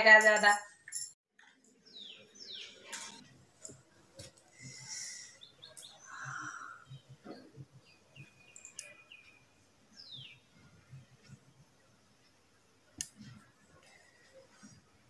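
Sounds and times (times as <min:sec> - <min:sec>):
faint bird chirps: 0:04.6 - 0:11.1.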